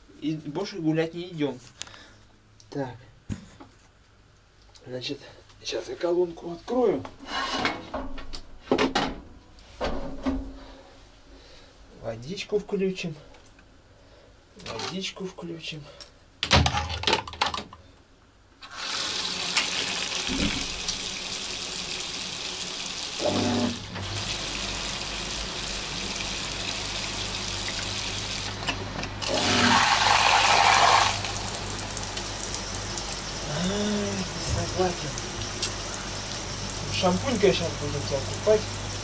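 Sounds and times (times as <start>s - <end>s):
tap water running into bathtub: 18.6s - 28.6s, 29.2s - 39.0s.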